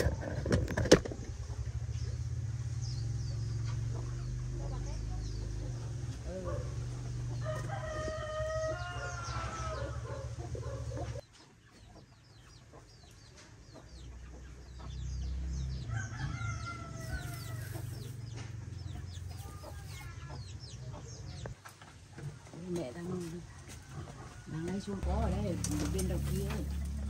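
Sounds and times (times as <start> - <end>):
chickens chirping: 0.0 - 27.0
rooster crowing: 7.4 - 10.4, 15.9 - 18.2.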